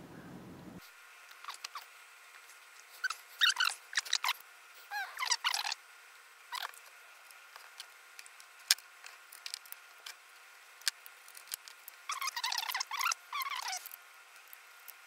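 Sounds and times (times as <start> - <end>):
squeaky chirping: 3.0 - 5.8, 12.1 - 13.9.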